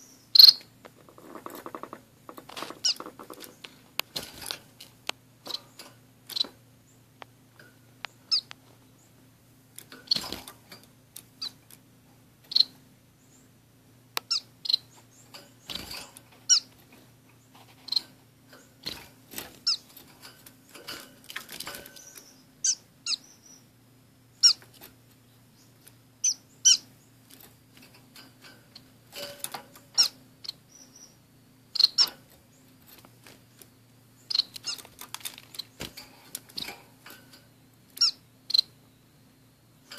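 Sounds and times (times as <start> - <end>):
finches chirping: 0.0 - 2.0, 2.7 - 4.2, 5.4 - 7.2, 8.0 - 9.2, 10.0 - 11.7, 12.4 - 13.6, 14.2 - 20.0, 21.8 - 27.2, 28.2 - 37.0, 37.9 - 39.0
wing flutters and rustles: 0.9 - 6.6, 9.8 - 11.8, 15.0 - 22.4, 32.0 - 38.1.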